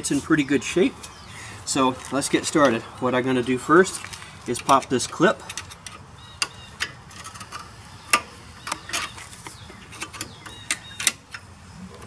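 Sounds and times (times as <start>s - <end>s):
screwdriver clicking and scraping metal: 5.5s - 11.4s.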